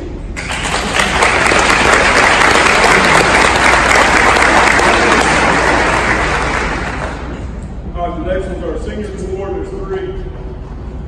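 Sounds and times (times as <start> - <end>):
audience applauding: 0.4 - 7.4.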